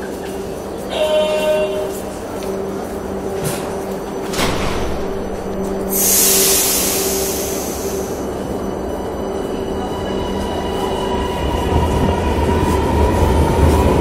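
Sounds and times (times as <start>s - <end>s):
train whine: 0.0s - 14.0s
hiss of air: 5.9s - 8.3s.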